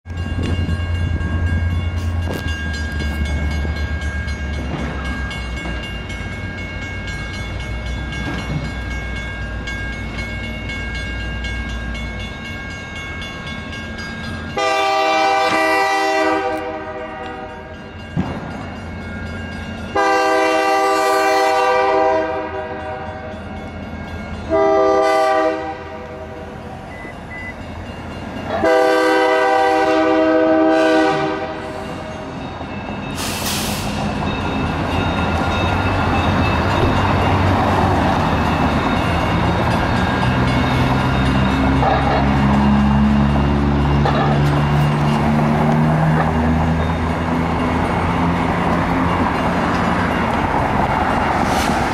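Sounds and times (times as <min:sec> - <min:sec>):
locomotive air horn blasts: 0:14.6 - 0:17.6, 0:20.0 - 0:23.0, 0:24.5 - 0:26.2, 0:28.5 - 0:31.8.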